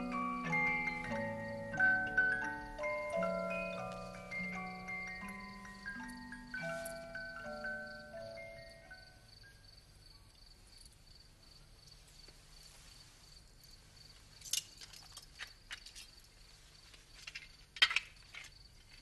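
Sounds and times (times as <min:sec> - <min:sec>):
cricket chirping: 0:00.0 - 0:19.0
clicks and rustles of handling: 0:14.4 - 0:19.0.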